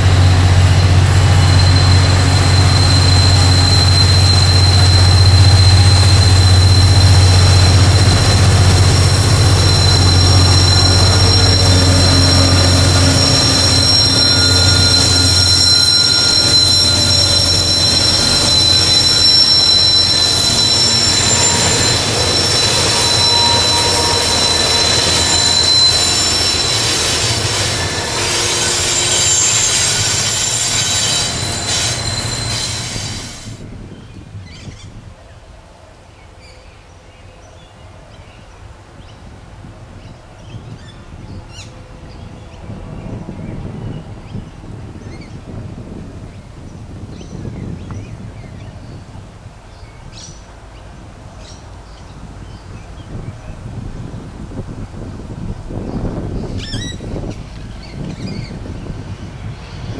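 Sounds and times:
locomotive engine drone: 0:00.0 - 0:33.6
train wheels squealing: 0:00.0 - 0:34.9, 0:40.0 - 0:46.0, 0:51.3 - 0:59.9
train rolling rumble: 0:00.0 - 0:36.0, 0:37.8 - 0:59.9.

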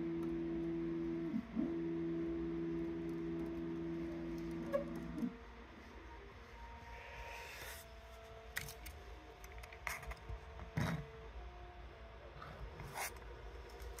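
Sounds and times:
stepper motors whining: 0:00.0 - 0:08.5
low hum: 0:00.0 - 0:14.0.

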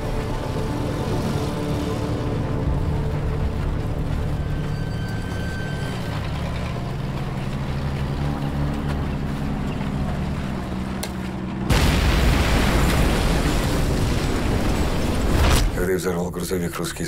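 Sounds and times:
loud rumbling explosion: 0:11.7 - 0:15.8.

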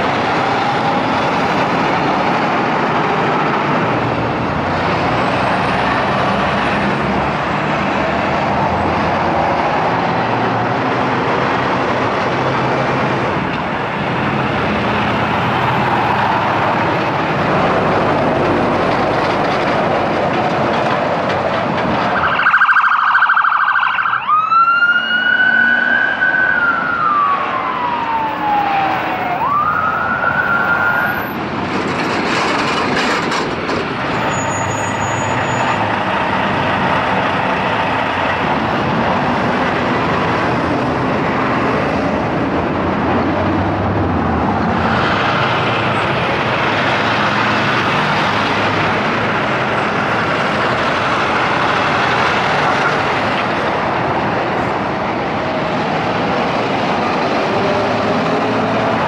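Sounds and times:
heavy highway traffic: 0:00.0 - 0:59.0
ambulance siren wailing: 0:22.1 - 0:31.4.

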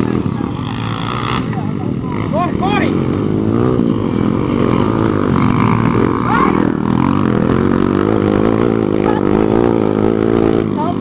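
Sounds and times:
motorcycle engines revving: 0:00.0 - 0:11.0.

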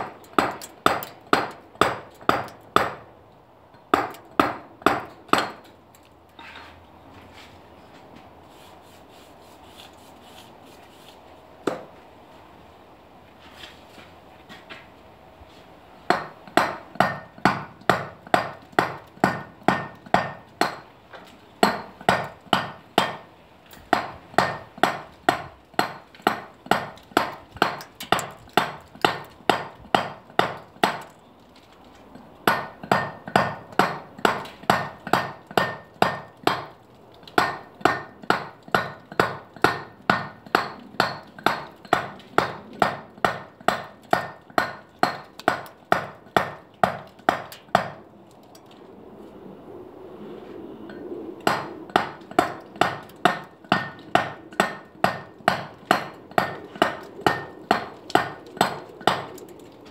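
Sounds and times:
mallet striking chisel on stone: 0:37.4 - 0:48.0, 0:51.5 - 0:59.2.

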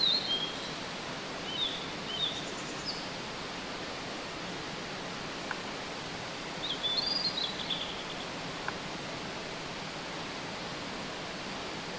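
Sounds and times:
bird whistling song: 0:00.0 - 0:00.8, 0:01.5 - 0:03.0, 0:06.6 - 0:08.2
mountain stream rushing: 0:00.0 - 0:11.9.

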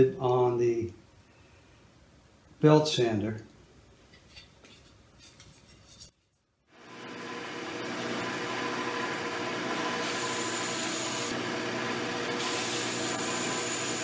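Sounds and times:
belt sander running: 0:06.8 - 0:14.0
wood sanding hiss: 0:09.8 - 0:11.4, 0:12.3 - 0:14.0.

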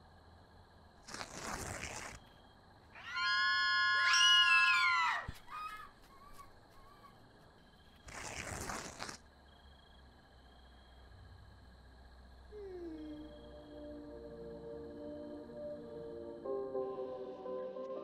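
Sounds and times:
shrill cry: 0:03.0 - 0:07.1.

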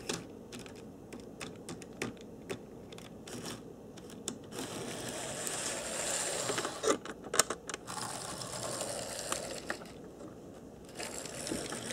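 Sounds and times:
model trolley motor whirring: 0:04.5 - 0:06.9, 0:07.9 - 0:09.9, 0:10.9 - 0:11.9.

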